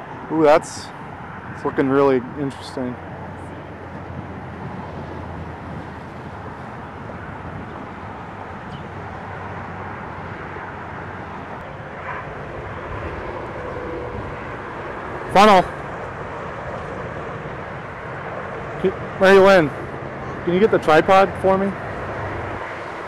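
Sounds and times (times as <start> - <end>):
distant road traffic: 0.0 - 23.0
wind: 0.0 - 23.0.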